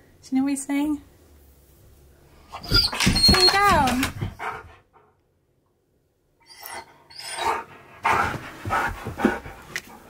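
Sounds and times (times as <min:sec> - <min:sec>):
dog whining vocalizations: 0:02.5 - 0:04.5, 0:06.4 - 0:07.7.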